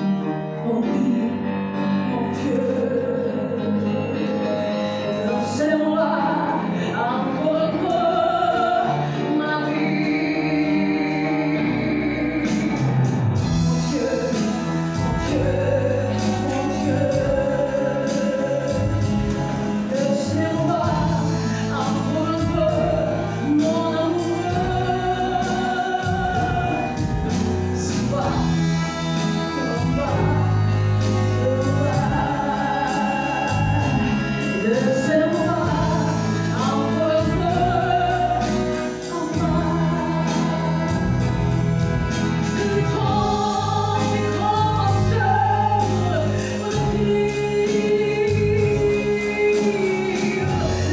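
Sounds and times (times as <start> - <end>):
piano: 0.0 - 50.9
woman singing: 0.0 - 50.9
drums keeping steady beat: 12.4 - 50.9.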